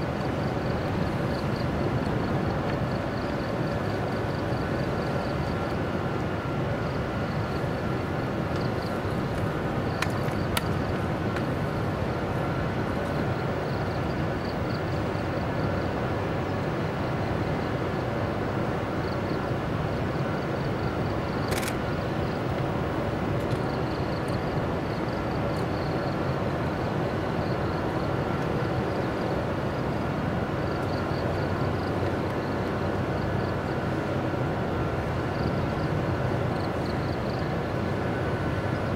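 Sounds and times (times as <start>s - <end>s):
electric locomotive humming: 0.0s - 38.9s
sharp clicks: 21.5s - 21.8s.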